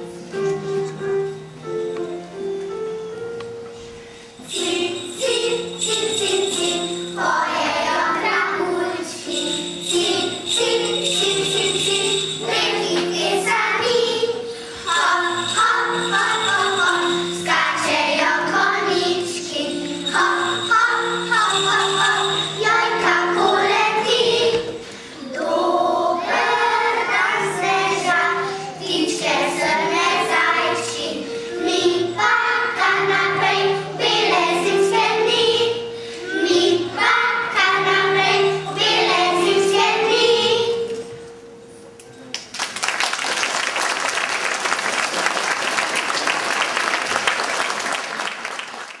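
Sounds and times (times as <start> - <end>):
piano accompaniment: 0.0 - 49.0
children's choir singing: 4.4 - 41.5
audience applauding: 42.3 - 49.0.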